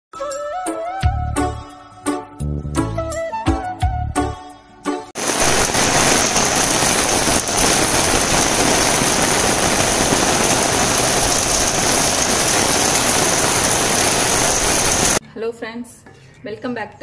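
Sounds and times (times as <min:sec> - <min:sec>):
heavy rain on plants and grass: 0:05.2 - 0:15.2.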